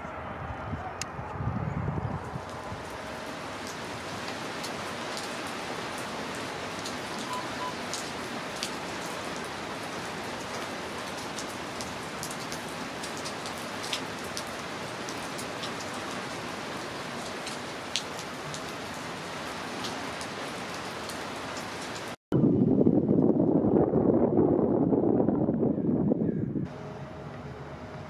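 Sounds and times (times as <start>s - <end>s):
rain on concrete: 2.3s - 22.2s.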